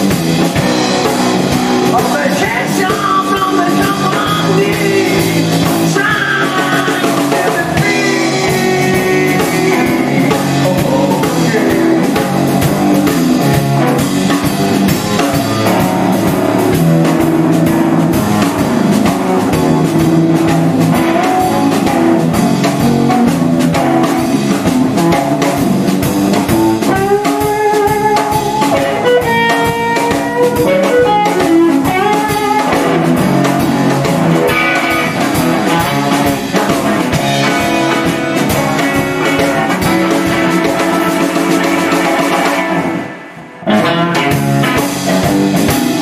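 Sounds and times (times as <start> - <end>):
rock band playing: 0.0 - 46.0.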